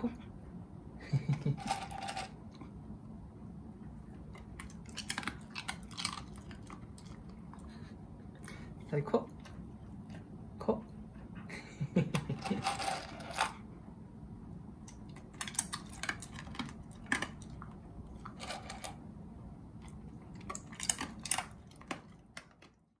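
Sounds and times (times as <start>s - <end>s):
dog chewing and lip-licking: 4.1s - 10.4s, 14.8s - 18.8s, 19.8s - 22.9s.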